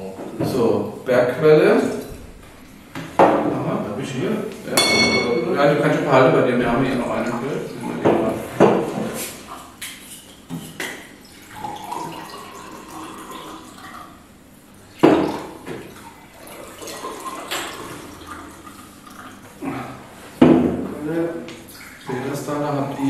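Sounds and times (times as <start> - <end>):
glasses clinking: 4.8 - 5.8
wine pouring into glass: 11.3 - 14.1, 15.3 - 19.4.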